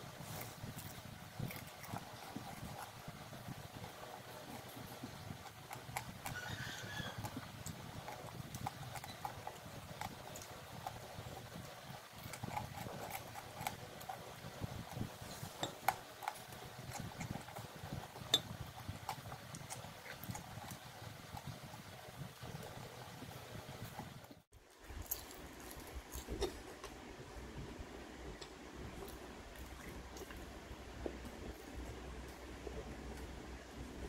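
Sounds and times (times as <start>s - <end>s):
faint low hum: 0.0s - 34.0s
chewing and lip-smacking: 0.1s - 24.1s, 28.4s - 30.5s.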